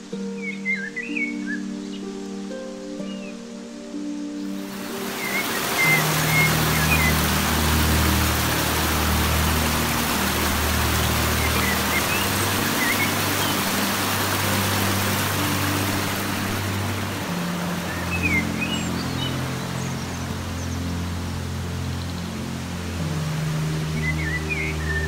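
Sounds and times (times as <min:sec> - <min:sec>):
soft background music: 0:00.0 - 0:25.0
stream splashing over rocks: 0:04.6 - 0:25.0.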